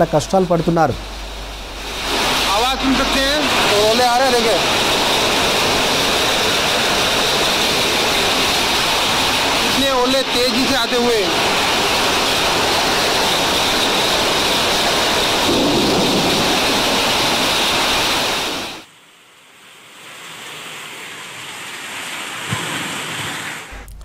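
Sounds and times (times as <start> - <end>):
heavy rain and gushing runoff: 0.0 - 18.9
rain on a tiled roof: 1.6 - 23.8.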